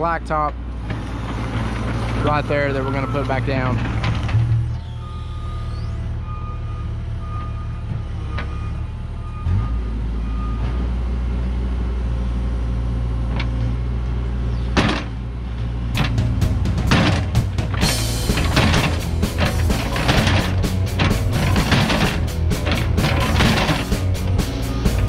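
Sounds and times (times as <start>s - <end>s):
excavator diesel engine running: 0.0s - 25.0s
sharp knocks: 16.0s - 24.4s.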